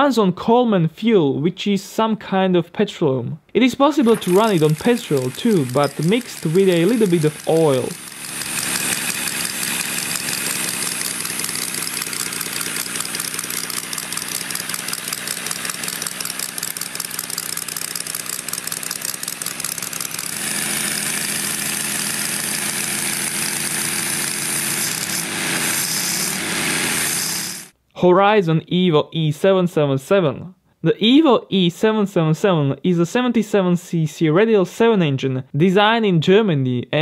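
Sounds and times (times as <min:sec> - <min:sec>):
model engine running: 0:04.0 - 0:27.8.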